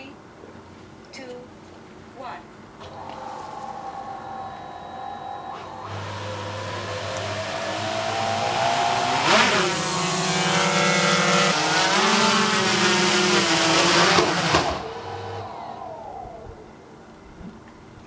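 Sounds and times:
drone propellers whining: 0:02.8 - 0:17.6.

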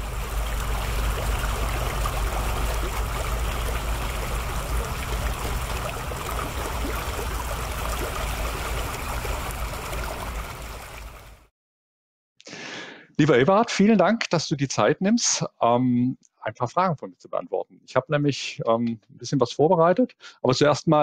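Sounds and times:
low rumble: 0:00.0 - 0:11.4
running water: 0:00.0 - 0:11.4.

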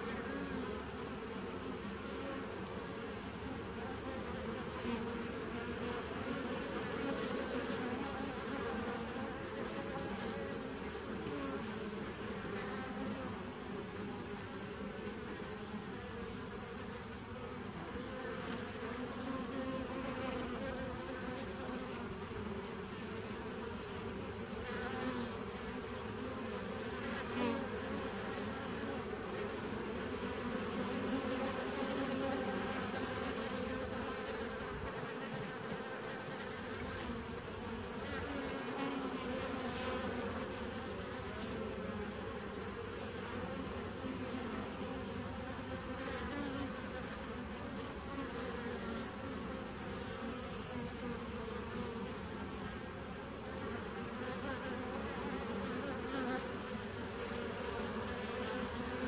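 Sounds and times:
honeybees buzzing: 0:00.0 - 0:59.0.

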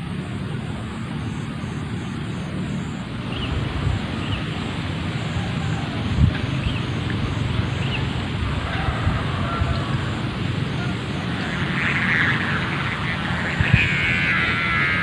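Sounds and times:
kite hummer string droning: 0:00.0 - 0:15.0.

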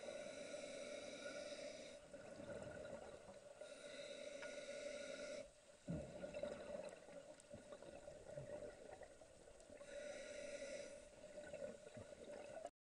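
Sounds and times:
regulator hissing inhale: 0:00.0 - 0:02.1, 0:03.6 - 0:05.6, 0:09.8 - 0:11.2.

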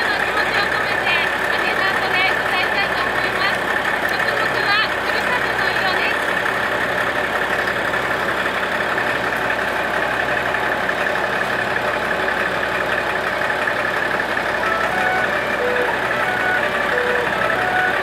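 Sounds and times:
diesel engine idling: 0:00.0 - 0:18.0
short pitched notes: 0:14.6 - 0:18.0.

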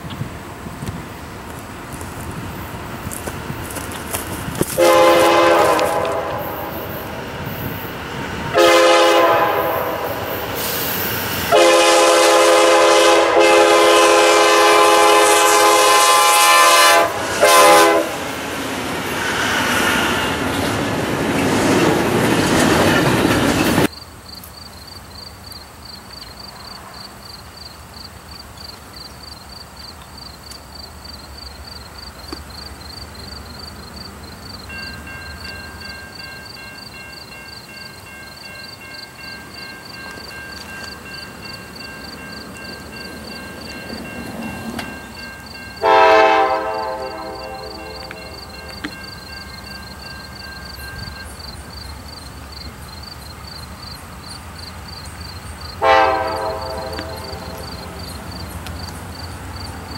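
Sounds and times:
train wheels on rails: 0:00.0 - 0:59.9
locomotive air horn blasts: 0:04.7 - 0:07.0, 0:08.5 - 0:10.4, 0:11.5 - 0:18.3, 0:45.8 - 0:48.8, 0:55.8 - 0:58.0.

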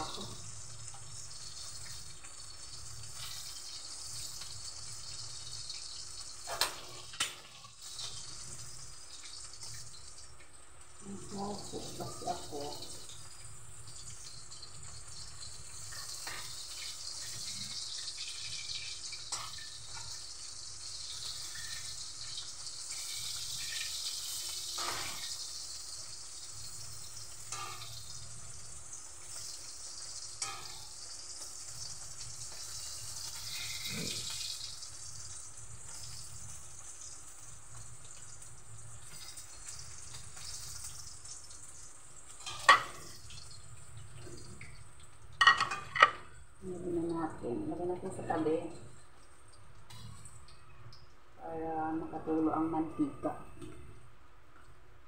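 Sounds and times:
meat deep-frying in oil: 0:00.0 - 0:55.0.

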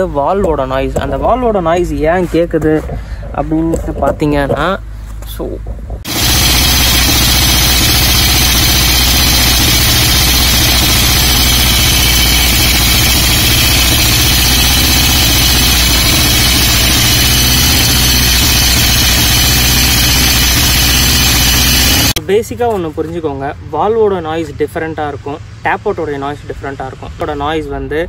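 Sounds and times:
valves clattering: 0:05.7 - 0:22.2
motorcycle engine idling: 0:06.1 - 0:22.2.

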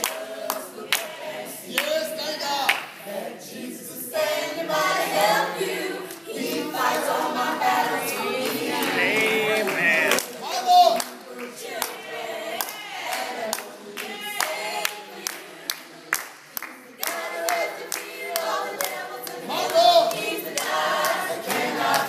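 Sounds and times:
hand claps: 0:00.0 - 0:01.1, 0:02.7 - 0:03.0, 0:08.4 - 0:12.0, 0:12.6 - 0:22.0
group singing in harmony: 0:00.0 - 0:22.0.

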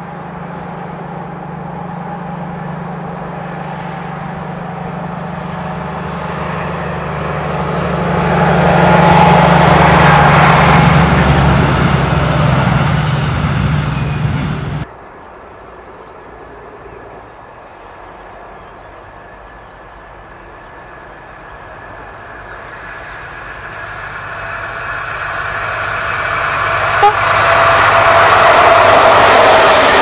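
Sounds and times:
diesel locomotive engine and wheels: 0:00.0 - 0:30.0
short sharp tone: 0:26.8 - 0:27.9.

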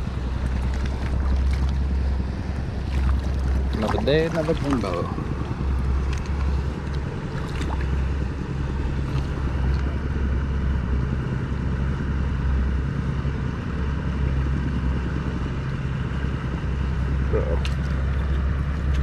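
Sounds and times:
wind buffeting microphone: 0:00.0 - 0:10.4.

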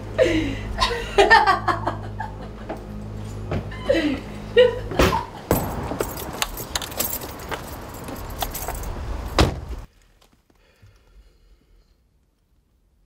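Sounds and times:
car keys jangling: 0:05.5 - 0:09.4
car door shutting: 0:08.4 - 0:09.8.

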